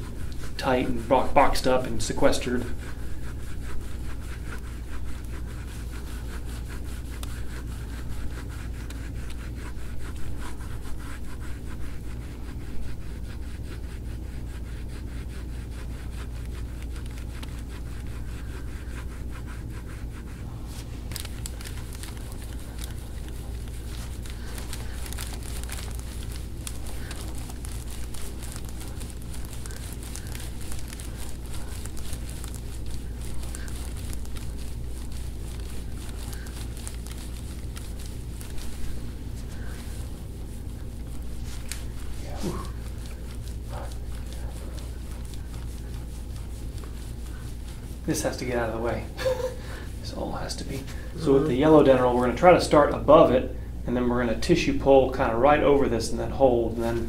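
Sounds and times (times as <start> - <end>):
scraping and rubbing on oiled skin: 0.0 - 53.4
steady low hum: 0.0 - 57.0.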